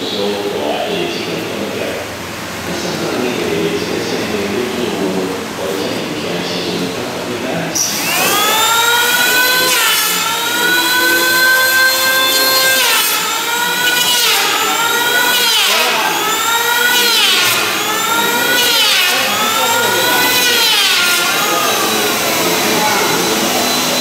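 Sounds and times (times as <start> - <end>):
power tool motor whining: 7.8 - 24.0.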